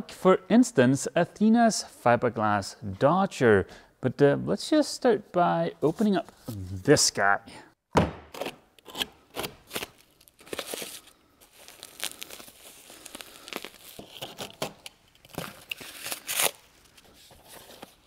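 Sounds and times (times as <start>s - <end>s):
knife cutting duct tape: 8.3s - 10.0s
foam packing crinkling: 9.6s - 18.0s.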